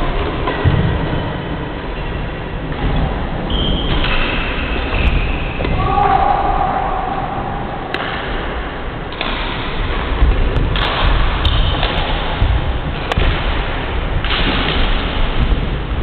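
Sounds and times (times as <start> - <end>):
low rumble and hiss of hall: 0.0 - 16.0
rackets striking shuttlecock: 7.9 - 15.5.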